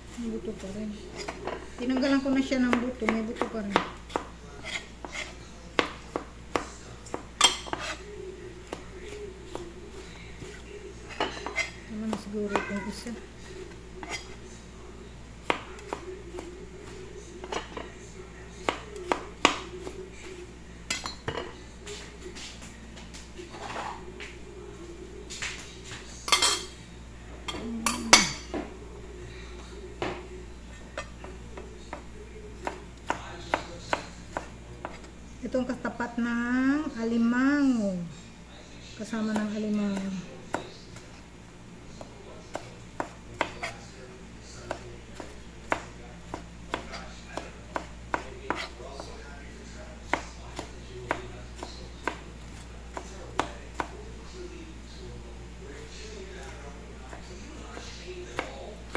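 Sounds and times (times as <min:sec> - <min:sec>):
knife chopping on cutting board: 0:02.7 - 0:08.0, 0:32.6 - 0:35.1, 0:39.3 - 0:41.2, 0:42.0 - 0:43.8, 0:44.6 - 0:49.2, 0:50.1 - 0:54.0, 0:56.4 - 0:58.9
kitchenware clinking on a counter: 0:10.4 - 0:13.2, 0:17.4 - 0:18.0, 0:20.9 - 0:22.5, 0:26.3 - 0:26.8.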